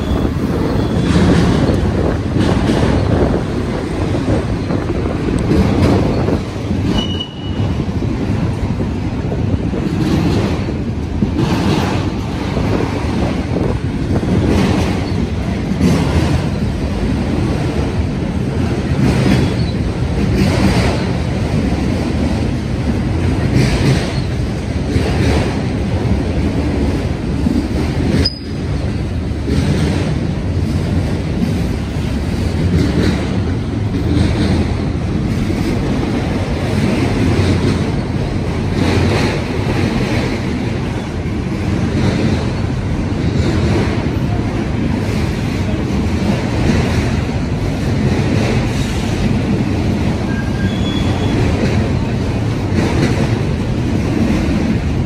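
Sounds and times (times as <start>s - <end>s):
train wheels rumbling on rail: 0.0s - 55.0s
wheels clacking over rail joints: 0.0s - 55.0s
high wheel squeal: 6.1s - 7.7s, 28.2s - 28.6s, 50.3s - 51.5s.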